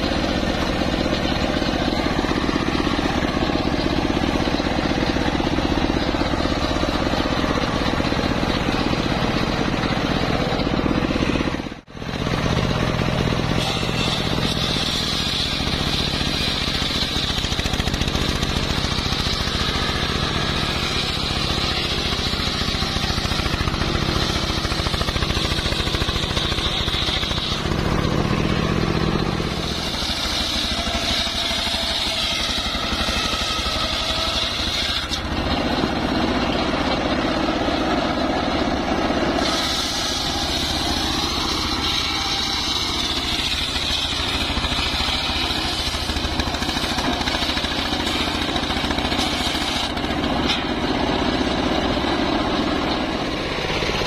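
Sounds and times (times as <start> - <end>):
circular saw cutting log: 0.0 - 54.0
sawmill engine running: 0.0 - 54.0.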